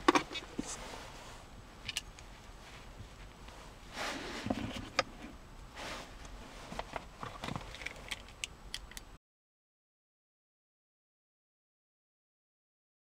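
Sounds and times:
soft rustling: 0.3s - 1.5s, 2.2s - 8.2s.

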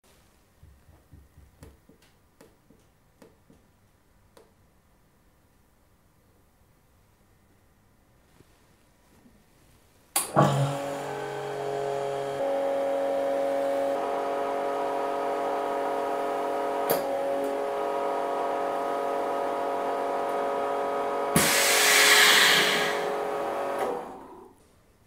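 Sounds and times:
vacuum pump humming: 10.2s - 24.5s
air hissing into chamber: 21.4s - 23.1s.

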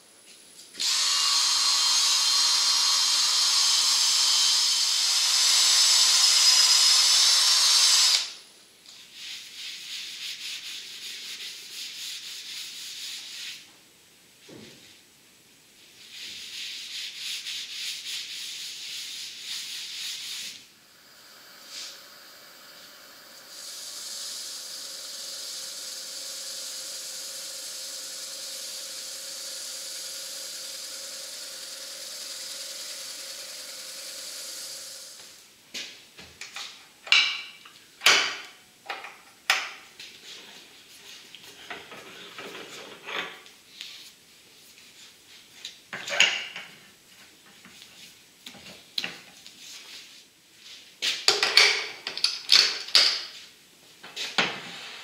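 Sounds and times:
wood lathe motor hum: 0.8s - 8.3s, 20.9s - 35.4s
cloth rubbing wooden bowl: 9.0s - 13.7s, 16.0s - 20.6s.

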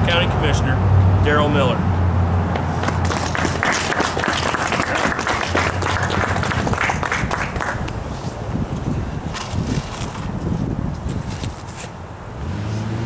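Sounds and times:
audience applauding: 2.8s - 7.9s.

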